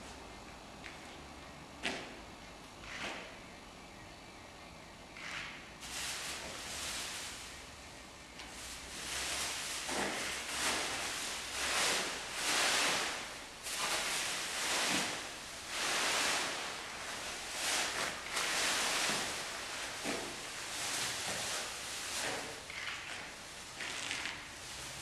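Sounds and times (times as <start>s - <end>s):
plastic bags rustling: 5.4s - 7.8s, 8.4s - 25.0s.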